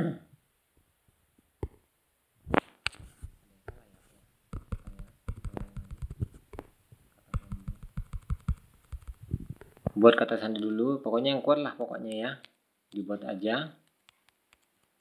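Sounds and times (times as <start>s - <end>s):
taps on phone keyboard: 4.5s - 6.7s, 7.3s - 10.0s.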